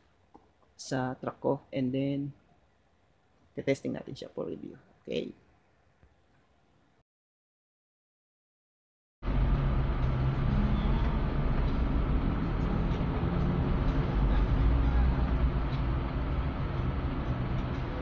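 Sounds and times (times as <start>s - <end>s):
vehicle engine and road rumble: 9.2s - 18.0s.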